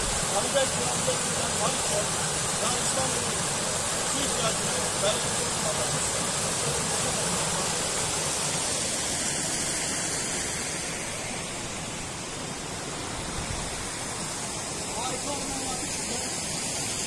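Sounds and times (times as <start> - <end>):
water rushing over weirs: 0.0 - 17.0.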